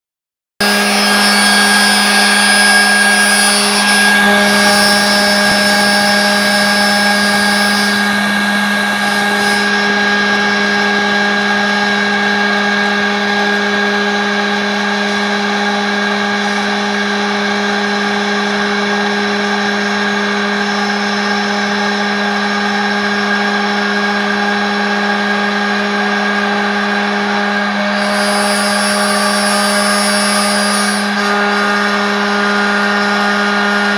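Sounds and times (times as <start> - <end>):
high hiss of cutting wood: 0.6 - 9.7, 28.0 - 31.2
router spindle high whine: 0.6 - 33.9.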